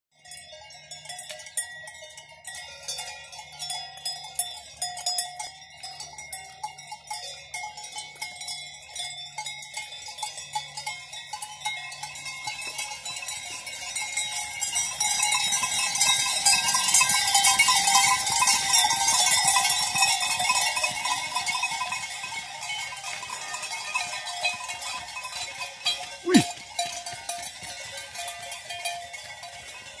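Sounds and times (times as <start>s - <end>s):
cowbells clanking: 0.2s - 30.0s.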